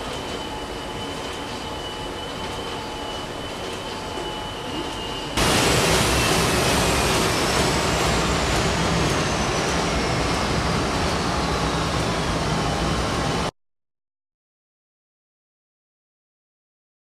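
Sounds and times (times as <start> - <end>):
printing press mechanical rush: 0.0 - 13.5.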